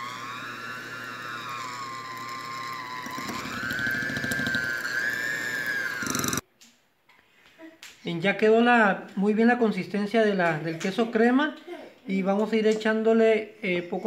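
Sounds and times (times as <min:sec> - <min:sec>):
beaters churning cream cheese: 0:00.0 - 0:06.4
electric hand mixer whining: 0:00.0 - 0:06.4.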